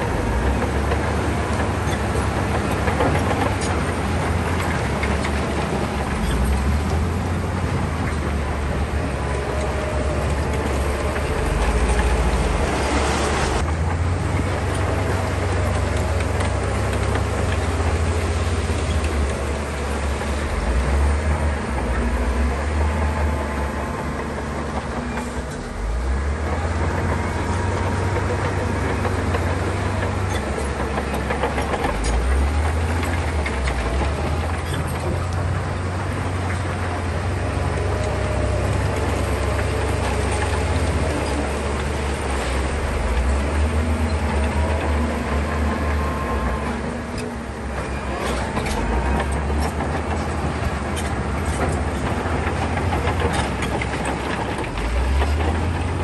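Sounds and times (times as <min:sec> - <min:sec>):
diesel earthmoving machine engine: 0:00.0 - 0:56.0
rattling clatter: 0:37.8 - 0:56.0.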